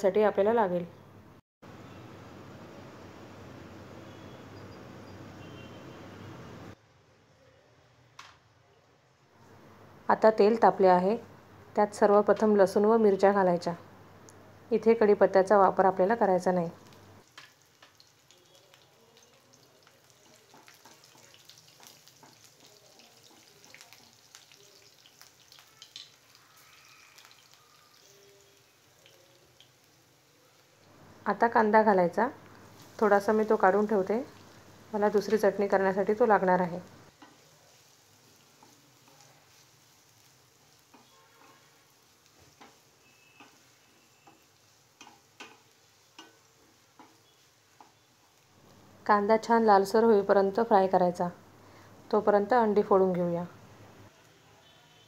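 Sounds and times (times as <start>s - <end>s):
garlic frying in hot oil: 14.7s - 55.0s
wooden spatula scraping: 37.1s - 48.1s
spatula knocking and scraping pan: 42.4s - 43.6s, 45.0s - 47.2s.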